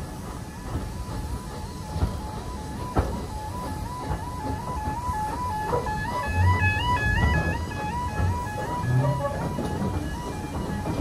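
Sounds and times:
train carriages rumbling on rails: 0:00.0 - 0:11.0
level crossing two-tone alarm: 0:01.5 - 0:11.0.

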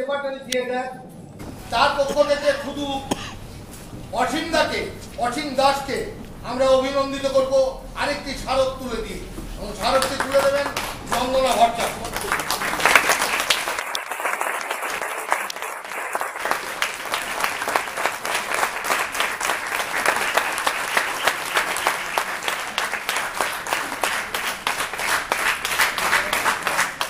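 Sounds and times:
crowd applauding: 0:09.7 - 0:27.0.

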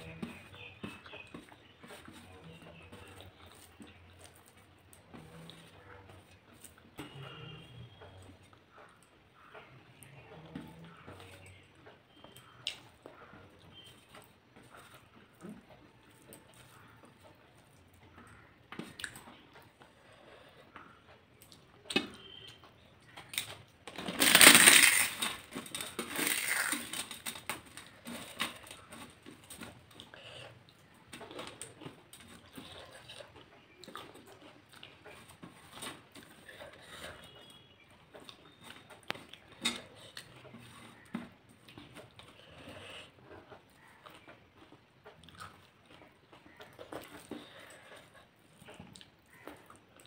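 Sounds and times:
fingers mixing rice: 0:00.0 - 0:50.0
fried papad crackling: 0:20.7 - 0:50.0.

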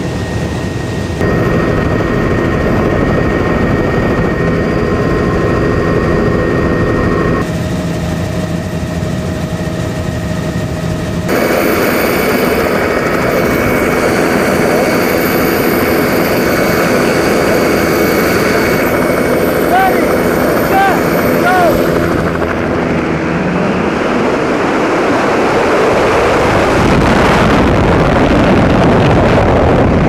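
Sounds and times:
aircraft engine: 0:00.0 - 0:30.0
helicopter cabin noise: 0:00.0 - 0:30.0
wind noise: 0:00.0 - 0:30.0.

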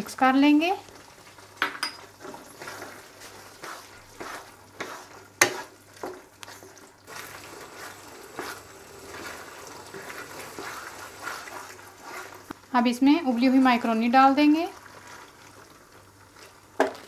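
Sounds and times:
food sizzling in a wok: 0:00.0 - 0:17.0
spatula scraping and knocking pan: 0:01.8 - 0:12.6.

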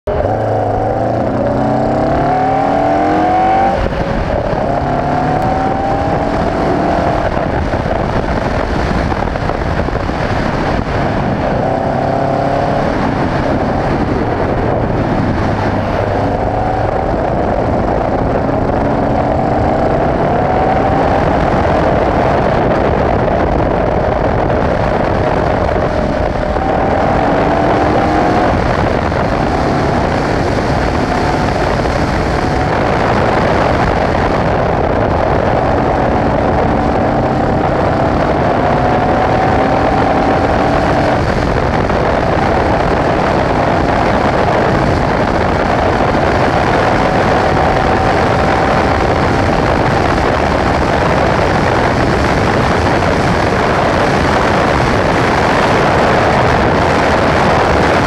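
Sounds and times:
race car engine accelerating hard: 0:00.0 - 0:58.0
wind and road noise: 0:00.0 - 0:58.0.

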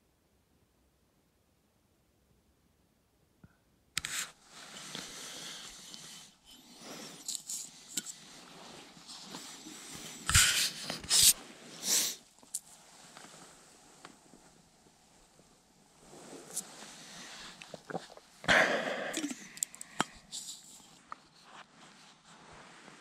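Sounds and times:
clothing and gear rustling: 0:04.1 - 0:18.4, 0:19.8 - 0:23.0.

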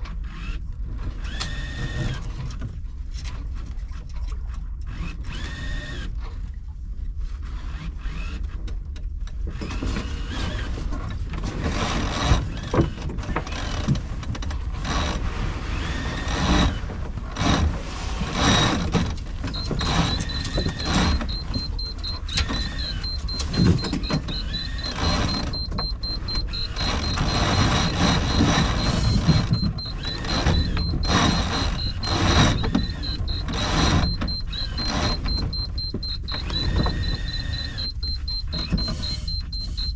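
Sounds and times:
winch ticking: 0:18.4 - 0:39.9.

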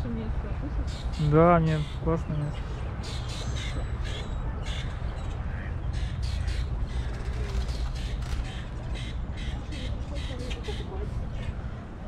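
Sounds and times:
steady low rumble: 0:00.0 - 0:12.0
birds cawing: 0:00.9 - 0:11.8.

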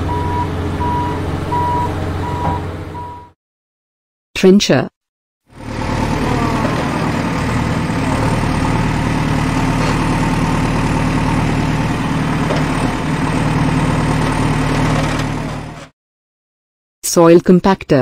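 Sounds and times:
trencher engine running: 0:00.0 - 0:03.3, 0:05.5 - 0:15.9.

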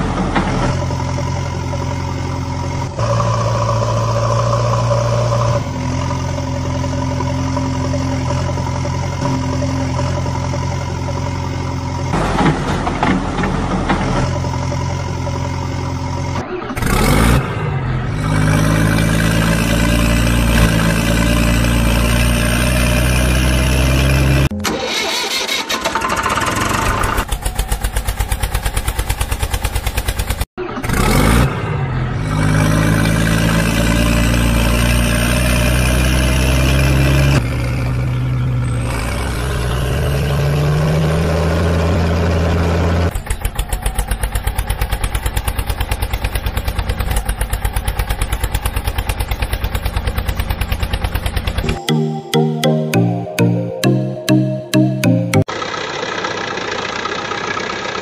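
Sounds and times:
tractor engine chugging: 0:00.0 - 0:16.4, 0:23.6 - 0:30.5, 0:43.1 - 0:58.0
diesel truck engines running: 0:00.0 - 0:58.0.

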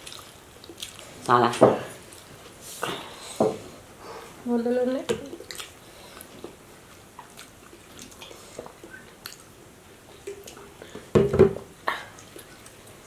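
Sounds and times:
chewing: 0:00.0 - 0:01.3, 0:05.3 - 0:10.9.

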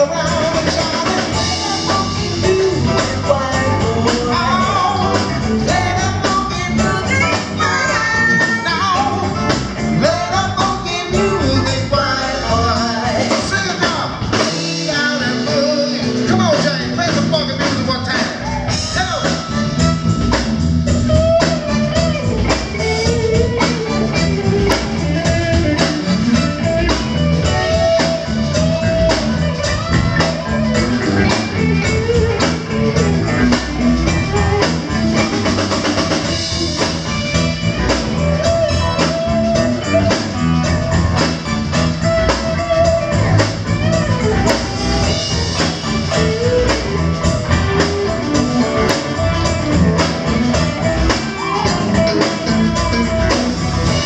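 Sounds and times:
person singing: 0:00.0 - 0:19.8
drum kit: 0:00.0 - 0:54.0
electric bass: 0:00.0 - 0:54.0
electric guitar: 0:00.0 - 0:54.0
keyboards: 0:00.0 - 0:54.0.

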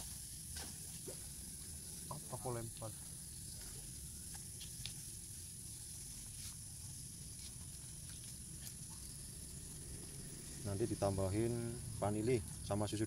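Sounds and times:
steady high hiss: 0:00.0 - 0:13.0.

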